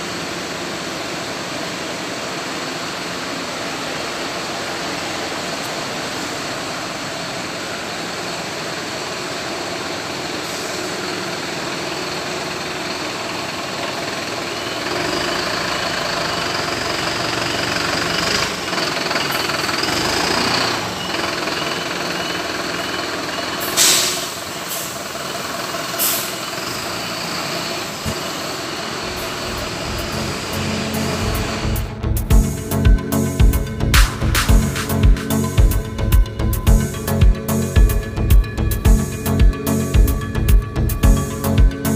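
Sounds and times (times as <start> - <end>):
diesel bus idling: 0.0 - 41.9
air hissing: 23.6 - 25.2
high whine: 26.3 - 41.9.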